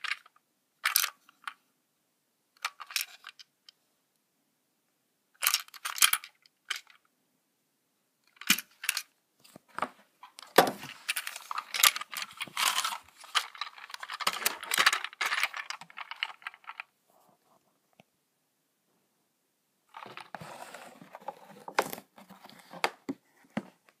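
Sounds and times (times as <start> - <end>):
plastic toy train rattling: 2.6 - 3.5, 5.4 - 7.0, 8.3 - 9.1, 10.9 - 16.9.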